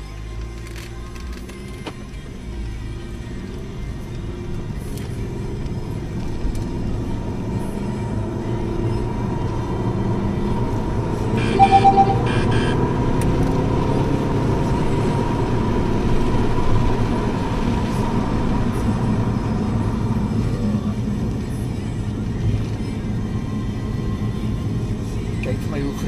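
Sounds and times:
car engine and tyre noise: 0:00.0 - 0:26.0
short high beeps: 0:11.4 - 0:12.8.

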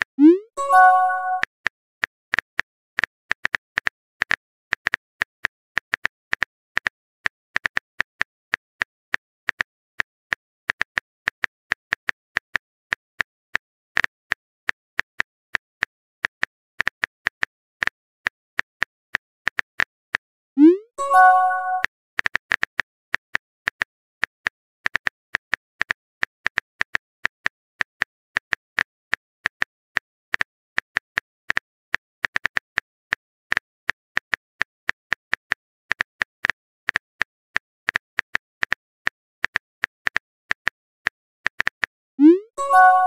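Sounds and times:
keyboard click sound effect: 0:00.2 - 0:01.5, 0:20.6 - 0:21.9, 0:42.2 - 0:43.0.

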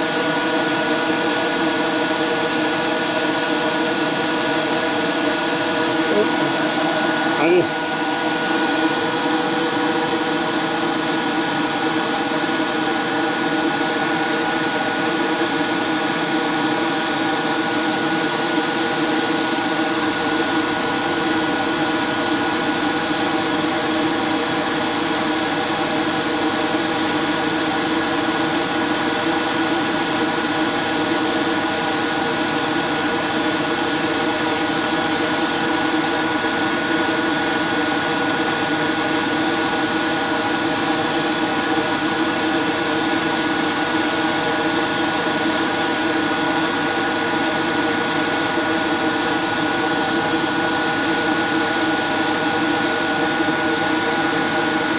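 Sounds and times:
airbrush spraying hiss: 0:09.5 - 0:37.3.

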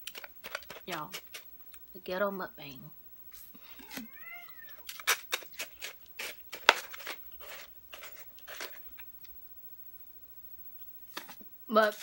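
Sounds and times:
crunchy clicks of icy slush: 0:00.0 - 0:01.8, 0:04.8 - 0:09.0.

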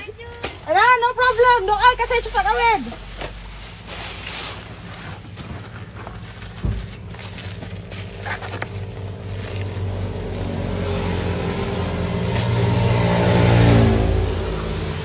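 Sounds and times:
car passing by: 0:09.2 - 0:15.0.

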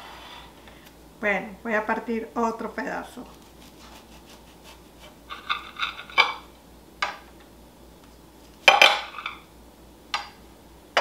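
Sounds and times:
knife scraping ceramic plate: 0:03.8 - 0:06.4.

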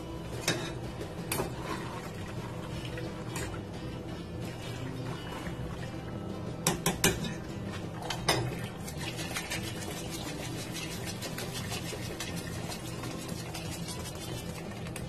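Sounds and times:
metal spoon scraping wire strainer: 0:08.8 - 0:14.7.

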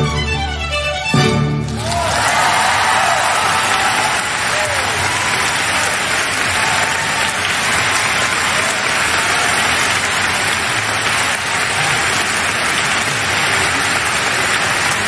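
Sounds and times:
audience applauding: 0:01.6 - 0:15.0.

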